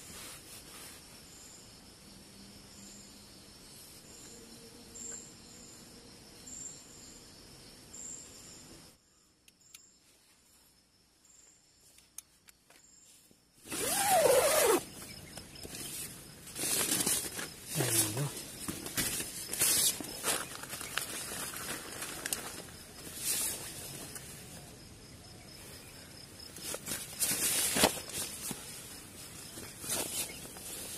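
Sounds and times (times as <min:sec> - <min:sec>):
tent fabric rustling: 0:00.0 - 0:01.1, 0:13.1 - 0:24.6, 0:26.5 - 0:30.9
faint insect chirps: 0:00.0 - 0:30.9
tent zipper pulled open: 0:13.6 - 0:15.0.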